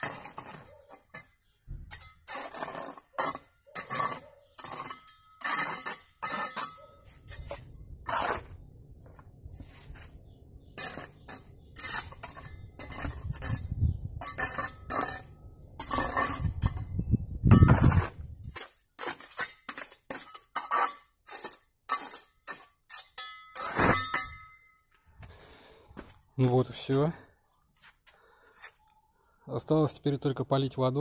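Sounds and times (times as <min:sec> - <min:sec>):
trowel scraping metal tub: 0:00.0 - 0:08.6, 0:10.7 - 0:24.4.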